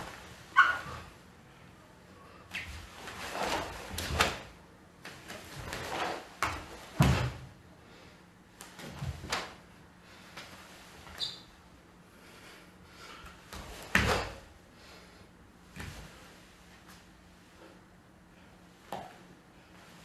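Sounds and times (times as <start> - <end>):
bare feet slapping wooden floor: 13.5 - 14.4.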